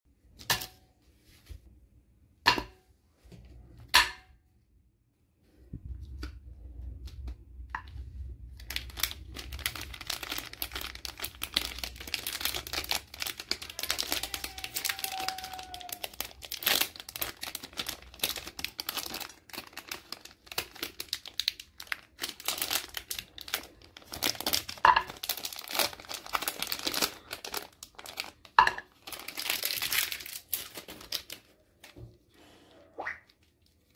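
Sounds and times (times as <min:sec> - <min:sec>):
wrappers crinkling: 0:08.5 - 0:32.0.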